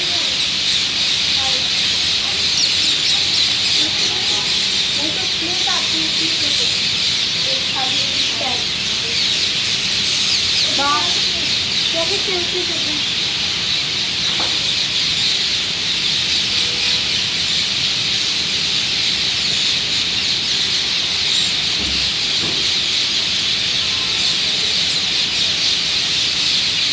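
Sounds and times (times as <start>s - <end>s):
flock of parrots calling: 0.0s - 26.9s.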